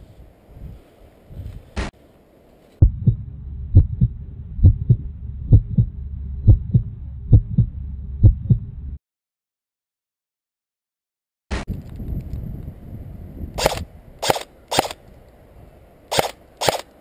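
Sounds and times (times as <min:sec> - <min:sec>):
low hum: 0:02.4 - 0:09.0
heartbeat thumps: 0:02.8 - 0:09.0.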